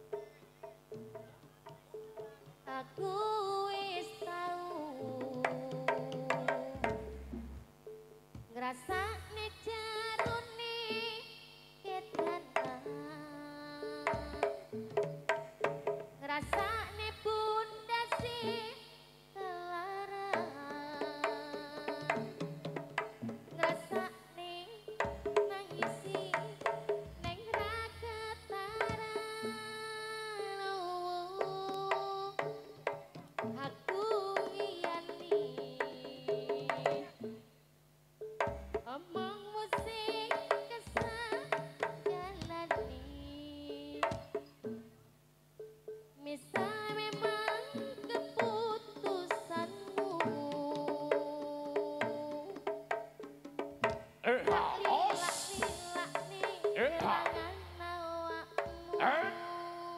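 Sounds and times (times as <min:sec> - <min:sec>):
quick hand-drum strokes: 0:04.0 - 0:11.2, 0:14.0 - 0:18.7, 0:20.0 - 0:24.3, 0:24.9 - 0:30.0, 0:31.3 - 0:37.5, 0:38.2 - 0:45.0, 0:46.5 - 0:59.6
hand drum strokes: 0:20.1 - 0:24.2, 0:46.5 - 0:59.6.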